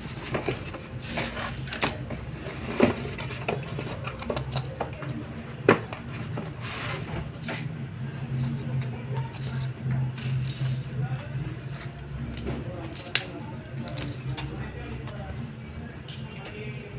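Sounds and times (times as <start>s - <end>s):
cardboard box scraping: 6.6s - 7.3s.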